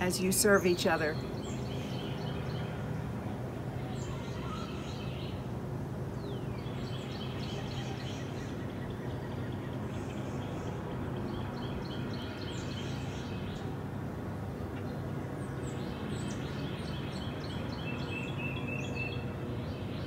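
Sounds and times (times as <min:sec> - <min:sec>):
birds chirping: 0:00.0 - 0:05.5
low outdoor background noise: 0:00.0 - 0:20.0.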